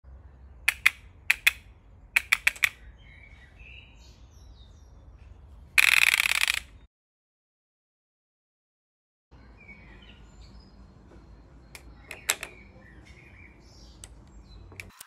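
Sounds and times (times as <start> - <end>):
birds chirping: 0.1 - 6.9, 9.3 - 14.9
rubber band gun clicking: 0.7 - 1.6, 2.2 - 2.8, 5.8 - 6.8.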